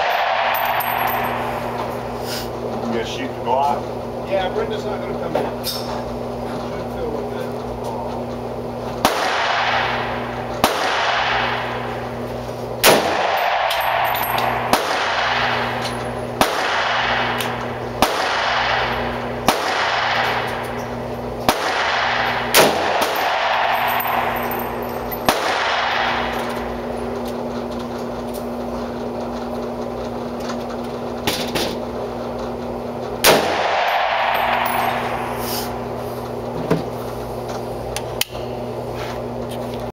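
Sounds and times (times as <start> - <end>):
rifle shots echoing indoors: 0.0 - 1.4, 9.0 - 11.8, 12.8 - 15.8, 16.4 - 20.6, 21.5 - 24.6, 25.2 - 26.4, 33.2 - 35.3
steady hum: 0.0 - 39.9.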